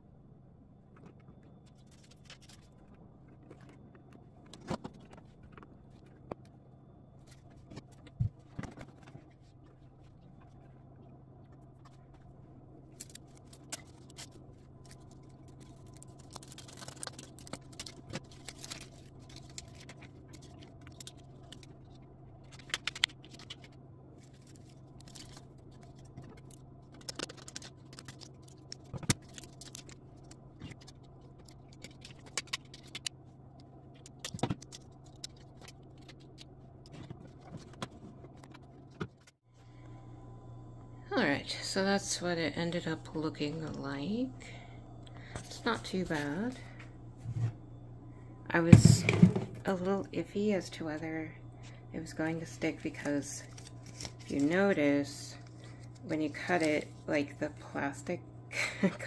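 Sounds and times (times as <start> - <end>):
steady low hum: 0.0 - 59.0
plastic sheets rustling: 12.9 - 33.0.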